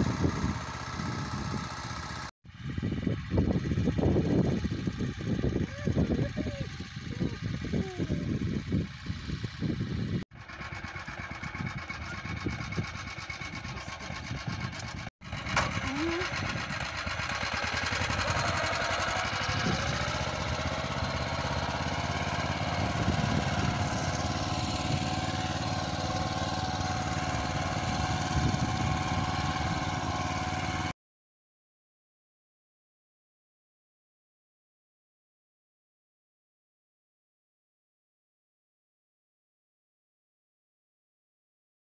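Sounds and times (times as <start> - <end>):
tractor engine running: 0.0 - 30.9.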